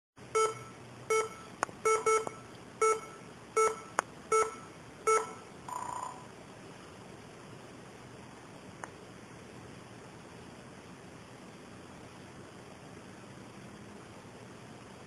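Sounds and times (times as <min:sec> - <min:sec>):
laptop error beeps: 0:00.4 - 0:06.3.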